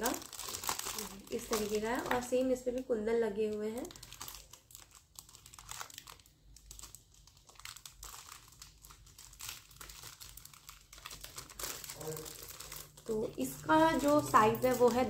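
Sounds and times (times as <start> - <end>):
plastic wrapping crinkling: 0.0 - 15.0.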